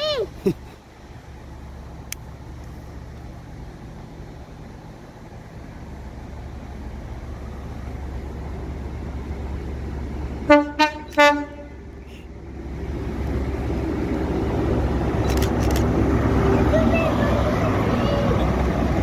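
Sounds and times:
train diesel rumble: 0:00.0 - 0:19.0
train horn blasts: 0:10.5 - 0:11.8.

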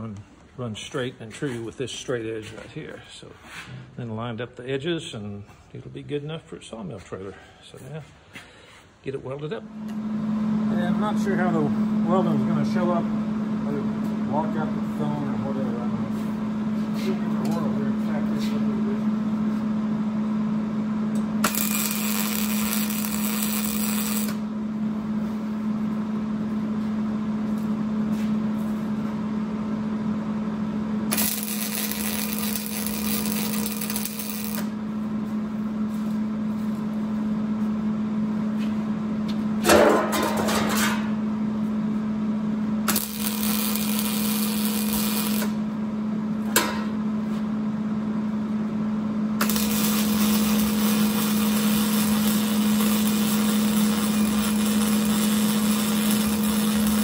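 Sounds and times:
steady low hum: 0:00.0 - 0:57.0
crackling hissing welding arc: 0:21.4 - 0:24.4, 0:31.1 - 0:34.7, 0:42.9 - 0:45.6, 0:49.4 - 0:57.0.

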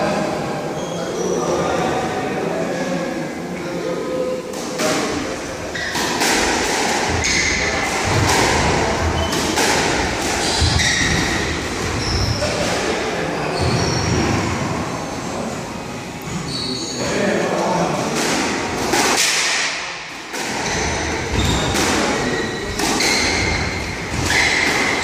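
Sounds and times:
shoes squeaking on wooden floor: 0:09.0 - 0:12.6, 0:13.5 - 0:15.2, 0:20.6 - 0:25.0.

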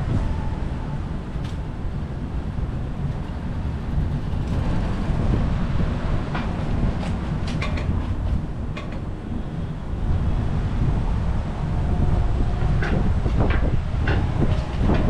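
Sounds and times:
wind and road noise: 0:00.0 - 0:15.0
bicycle clicks and rattles: 0:03.1 - 0:05.0, 0:06.3 - 0:09.1.

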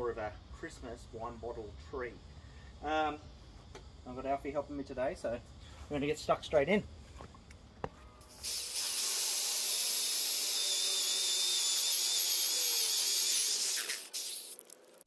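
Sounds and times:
electric drill whining: 0:08.2 - 0:14.8.

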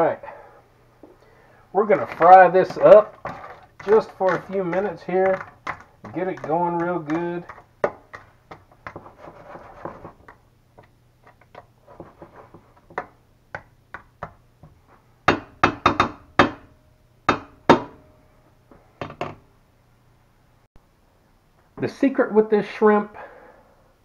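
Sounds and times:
spoon scraping skillet: 0:01.9 - 0:13.0
spoon knocking on pan: 0:02.1 - 0:09.1.

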